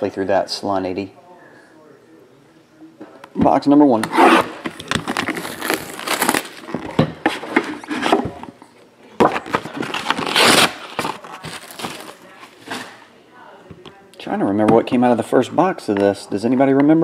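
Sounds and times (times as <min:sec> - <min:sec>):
plastic wrap crinkling: 0:04.7 - 0:06.9, 0:09.3 - 0:13.0
box cutter slitting plastic wrap: 0:05.1 - 0:06.6, 0:09.8 - 0:12.1.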